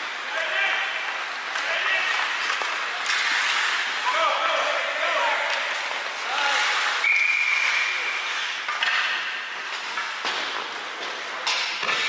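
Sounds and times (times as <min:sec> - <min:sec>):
whistle blast: 0:07.0 - 0:07.8.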